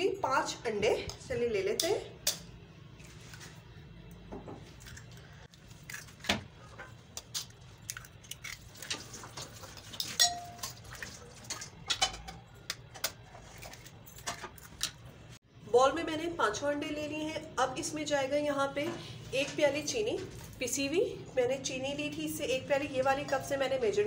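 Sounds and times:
knife clinking on glass bowl: 10.0s - 10.8s.

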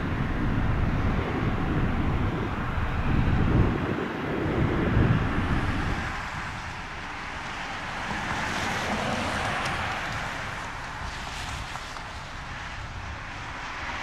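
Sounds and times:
wind buffeting microphone: 0.0s - 14.0s
vehicle passing: 4.6s - 12.8s.

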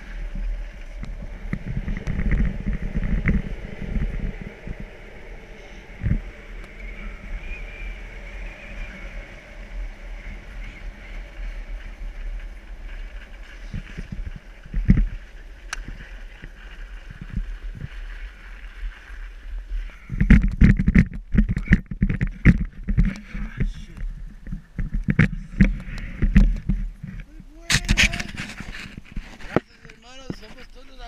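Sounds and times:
low thumps: 0.0s - 8.0s
wind buffeting microphone: 0.0s - 31.0s.

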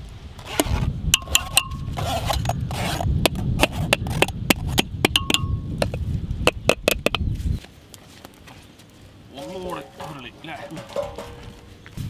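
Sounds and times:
metal sieves clinking on basins: 9.4s - 11.6s.

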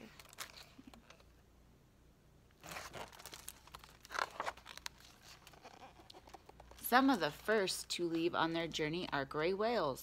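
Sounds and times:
paper pages rustling: 2.6s - 7.0s.

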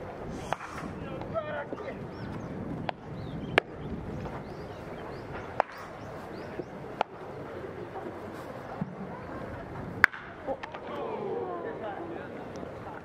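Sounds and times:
murmur of voices: 0.0s - 2.7s, 3.4s - 13.0s
birds chirping: 0.4s - 8.2s
baseball bat cracks: 0.5s - 0.9s, 5.6s - 5.9s, 10.0s - 11.0s.

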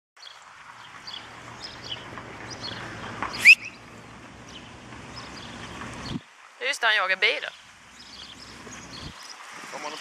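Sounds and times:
outdoor background noise: 0.2s - 10.0s
small birds chirping: 0.2s - 10.0s
high rising squeal: 3.3s - 3.8s.

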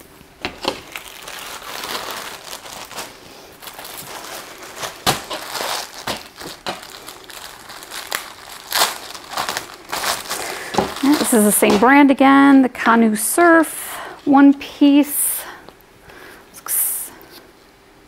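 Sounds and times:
packaging crinkling and rustling: 0.2s - 12.2s
packaging crackles: 0.4s - 12.0s.

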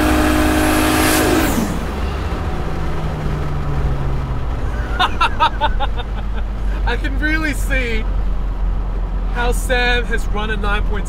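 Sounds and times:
car engine accelerating hard: 0.0s - 11.0s.

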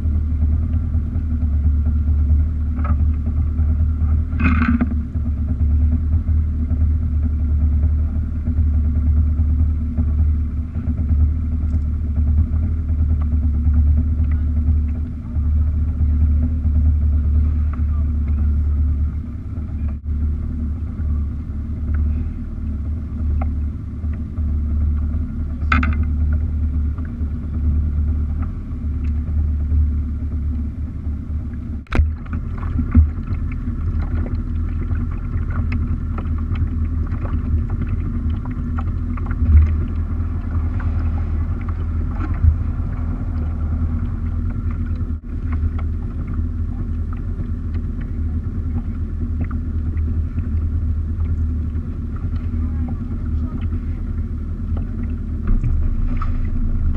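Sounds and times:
engine rumbling: 0.0s - 56.9s.

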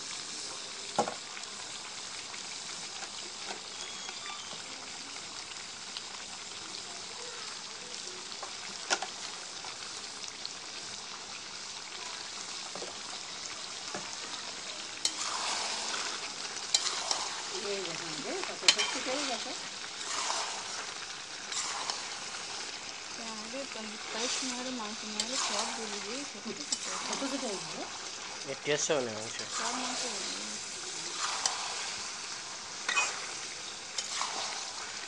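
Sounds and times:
meat sizzling in oil: 0.0s - 35.0s
ladle clinking against pan: 32.9s - 33.2s.

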